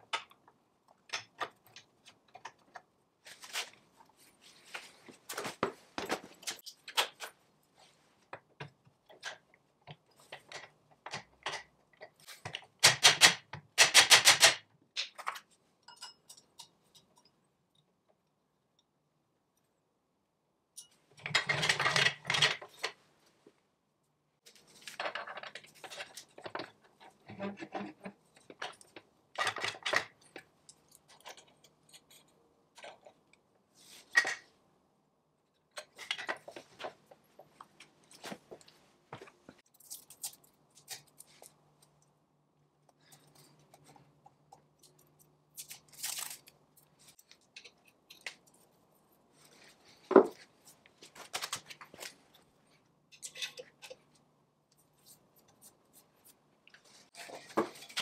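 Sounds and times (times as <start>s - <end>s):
light metallic clicks and scrapes: 53.1s - 58.0s.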